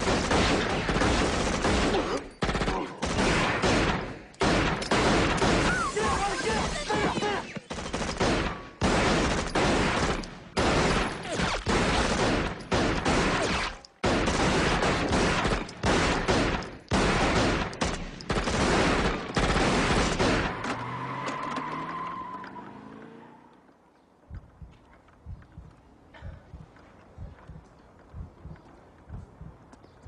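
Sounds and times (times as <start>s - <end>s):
rapid automatic gunfire: 0.0s - 20.6s.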